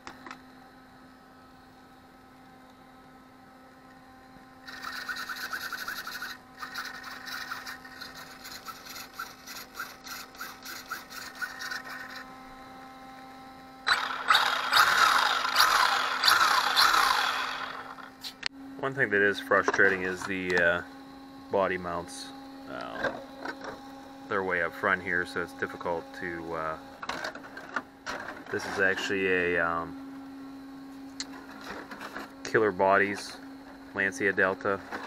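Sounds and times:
steady low hum: 0.0 - 35.0
rasping scrape: 4.6 - 12.3.

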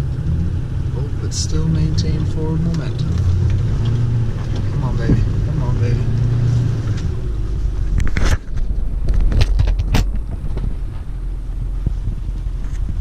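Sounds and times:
diesel engine low rumble: 0.0 - 13.0
sharp knocks and clatters: 7.8 - 11.1.

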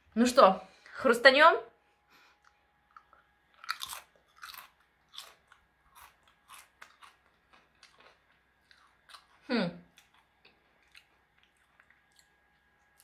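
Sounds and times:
potato chip crunching: 2.9 - 13.0.

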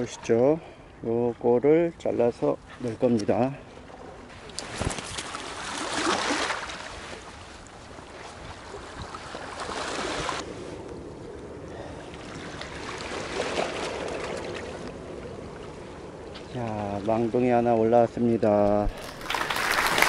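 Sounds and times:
water washing against rocks: 18.7 - 20.0.

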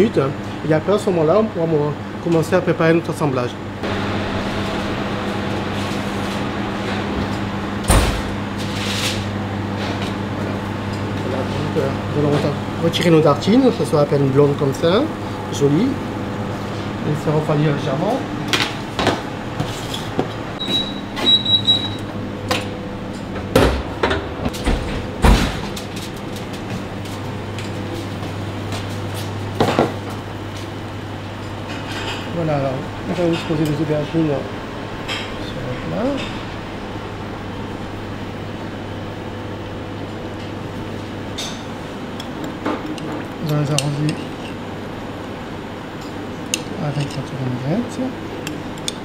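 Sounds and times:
kitchen ventilation hum: 0.0 - 49.0
oven door opening: 3.9 - 9.2, 20.6 - 26.2.

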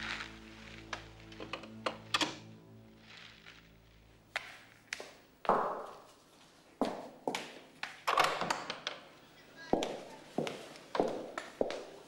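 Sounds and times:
footsteps on hard floor: 4.4 - 7.6, 9.7 - 12.0.

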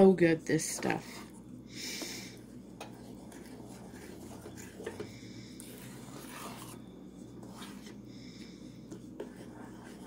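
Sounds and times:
wooden spoon scraping a saucepan: 2.6 - 8.0, 8.9 - 10.0.

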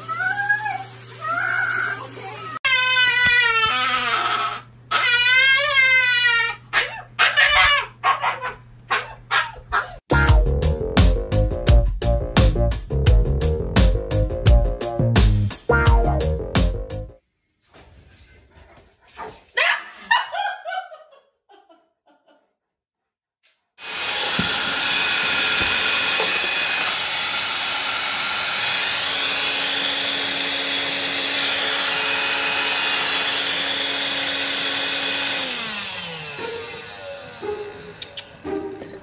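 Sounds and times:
vacuum motor spinning down: 23.8 - 38.5
vacuum cleaner running: 23.8 - 39.0.

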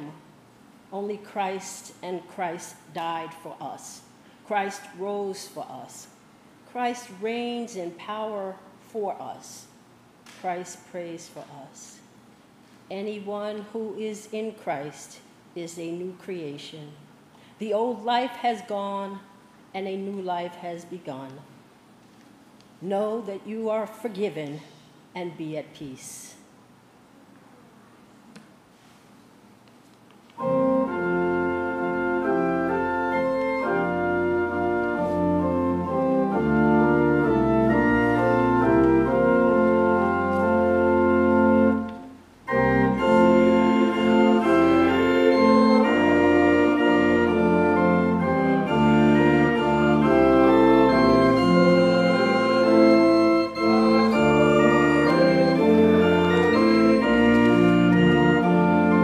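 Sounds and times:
church organ chords: 30.4 - 59.0.

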